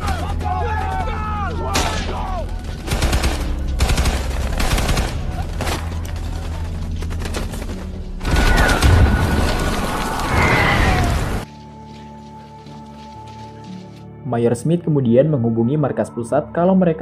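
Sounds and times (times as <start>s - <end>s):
rifle and machine-gun shots: 2.8s - 5.8s
explosion: 8.2s - 11.4s.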